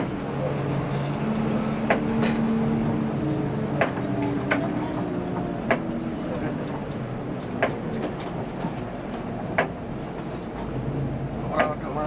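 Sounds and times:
bus engine humming: 0.0s - 12.0s
sharp knocks: 1.8s - 2.1s.

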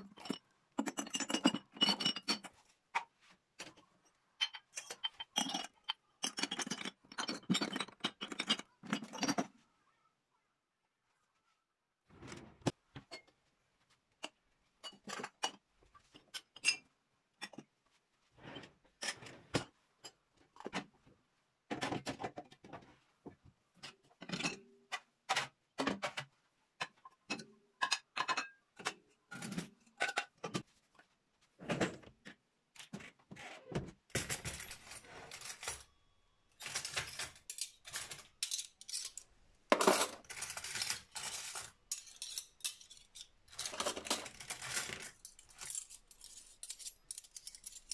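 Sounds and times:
cutlery clattering into plastic tray: 0.0s - 2.5s, 4.4s - 9.5s, 23.8s - 30.7s, 34.1s - 35.9s, 36.6s - 47.9s.

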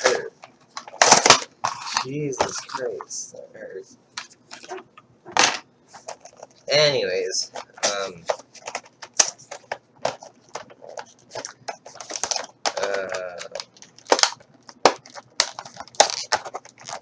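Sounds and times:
plastic packaging crackling: 7.6s - 17.0s.

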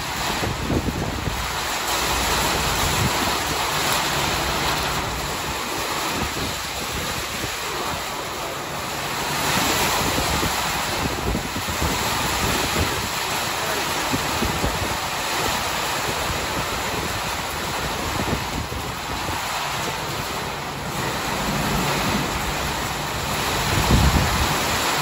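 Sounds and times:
heavy rain: 0.0s - 25.0s
strong wind gusting: 0.0s - 25.0s
wind rumbling on microphone: 0.0s - 25.0s.

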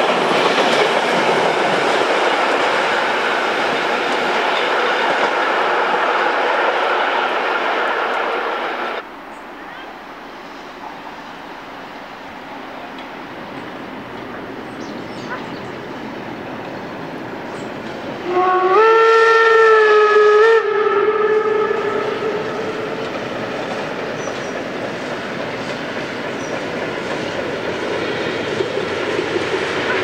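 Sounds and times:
train running across steel bridge: 0.0s - 30.0s
steam whistle: 18.2s - 23.2s.

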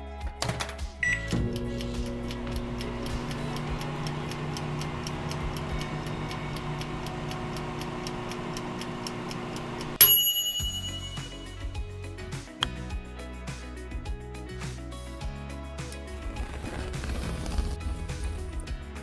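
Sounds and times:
wind-up timer ticking: 1.0s - 10.0s
toaster oven humming: 1.1s - 10.0s
timer bell ding: 9.8s - 11.9s.

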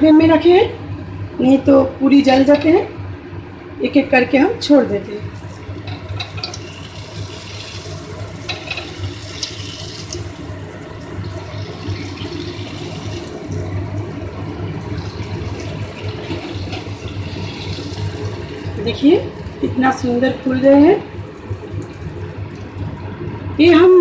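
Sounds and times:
dough sizzling in hot oil: 5.4s - 19.9s.

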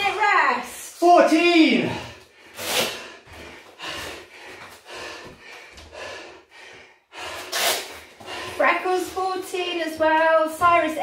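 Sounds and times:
person breathing hard: 1.9s - 8.8s.

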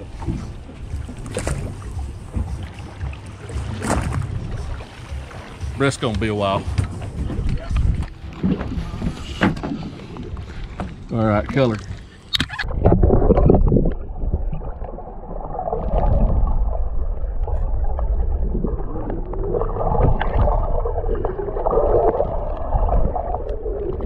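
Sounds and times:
underwater rumble and gurgle: 0.0s - 24.0s
wavering hum: 0.0s - 24.0s.

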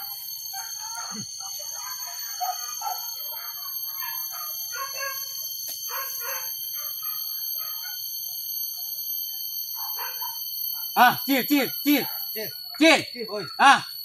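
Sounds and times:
buzz of forest insects: 0.0s - 14.0s
dogs yelping and whining: 0.6s - 8.0s.

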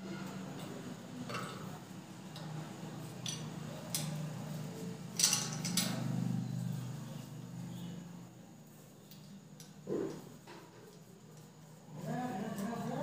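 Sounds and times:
small metal clinks and taps: 3.2s - 4.2s, 5.2s - 5.9s.

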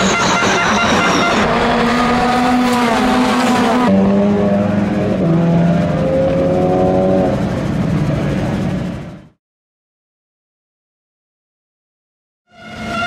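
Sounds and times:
racing car engines: 0.0s - 9.4s.

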